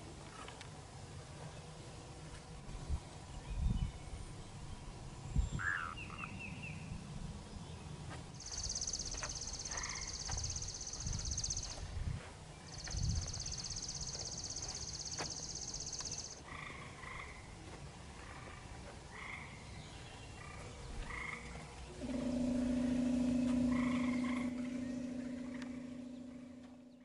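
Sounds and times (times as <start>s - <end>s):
frogs calling: 5.6s - 6.4s, 8.4s - 11.8s, 12.7s - 17.6s, 18.2s - 19.6s, 20.4s - 27.0s.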